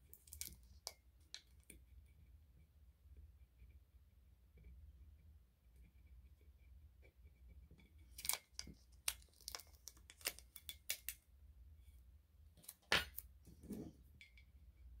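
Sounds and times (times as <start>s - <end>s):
tape and vinyl crinkling: 8.1s - 11.2s.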